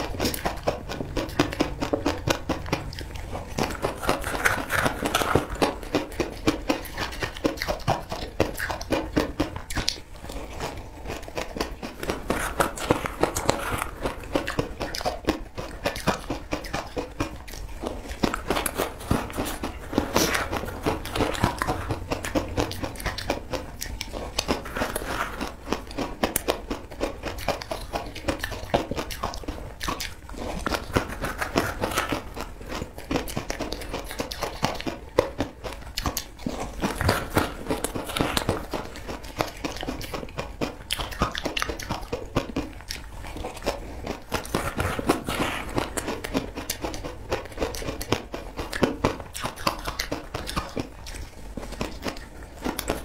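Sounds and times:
crunching frozen ice: 3.6s - 6.7s.

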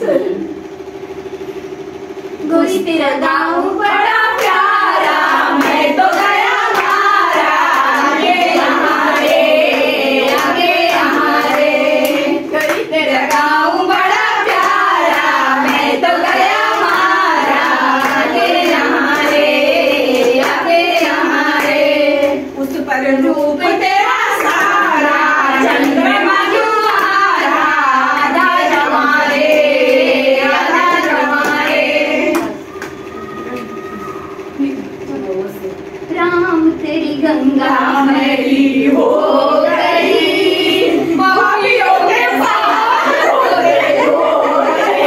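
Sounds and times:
women singing unaccompanied: 2.5s - 32.7s, 36.1s - 45.0s
hand claps: 5.5s - 13.5s, 14.1s - 22.4s, 30.9s - 33.0s.

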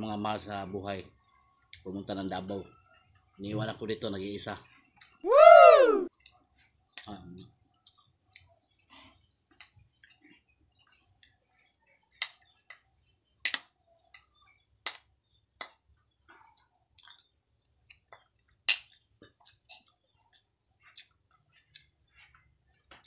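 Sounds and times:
chewing and mouth sounds: 16.5s - 22.1s.

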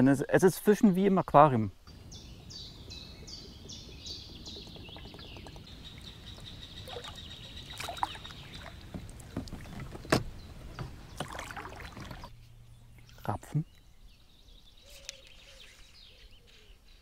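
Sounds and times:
oars knocking and splashing: 1.9s - 12.3s.

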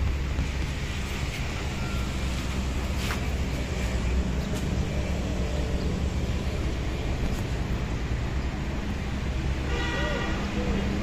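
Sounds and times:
wind rumble on microphone: 0.0s - 1.8s.

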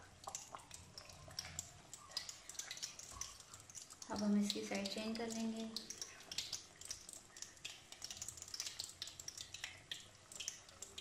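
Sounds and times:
potato slices deep-frying in oil: 0.0s - 11.0s.

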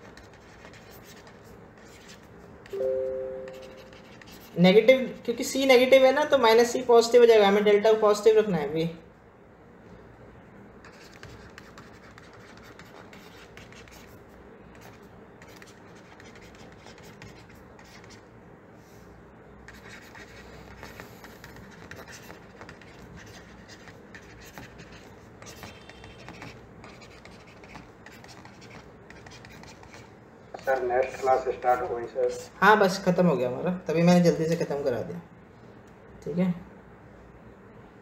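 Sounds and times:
stylus scratching on pen tablet: 0.0s - 2.8s, 3.4s - 5.0s, 10.8s - 18.3s, 19.6s - 32.5s.

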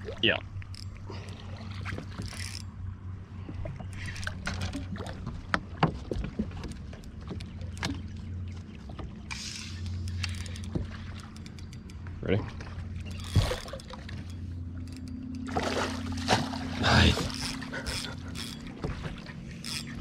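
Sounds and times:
rod and boat clicks: 0.5s - 2.8s, 3.4s - 15.6s, 17.2s - 20.0s
steady low hum: 7.0s - 20.0s
water splashing: 15.4s - 20.0s.

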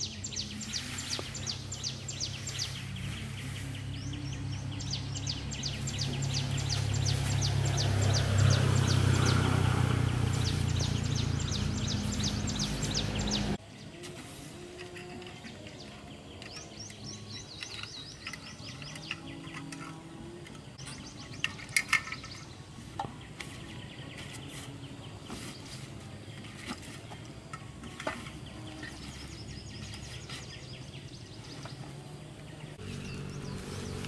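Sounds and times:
birds chirping: 0.0s - 34.0s
camping gear clicks and knocks: 14.0s - 24.5s, 25.5s - 30.8s.

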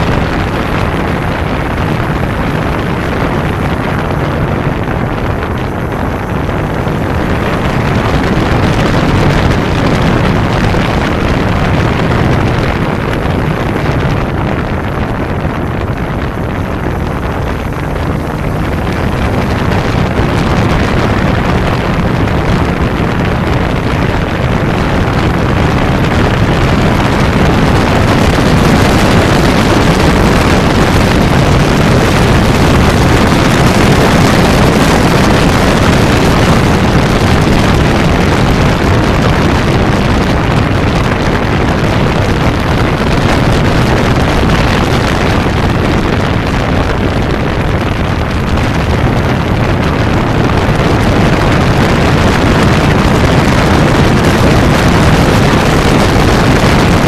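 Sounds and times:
motorcycle engine running: 0.0s - 57.0s
wind rush on microphone: 0.0s - 57.0s.

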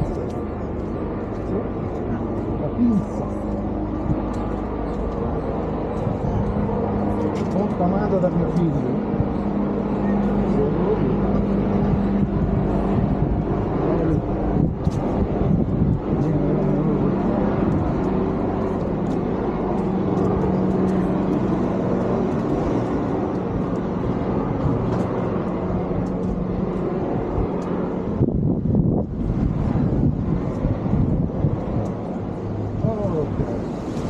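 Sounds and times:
engine humming steadily: 0.0s - 34.0s
outdoor street noise: 0.0s - 34.0s
scattered clicks: 17.6s - 24.0s, 24.6s - 27.9s, 31.6s - 32.1s.

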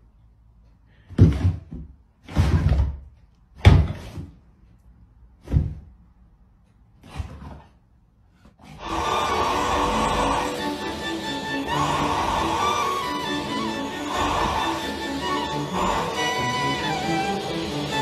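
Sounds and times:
music: 8.8s - 18.0s.

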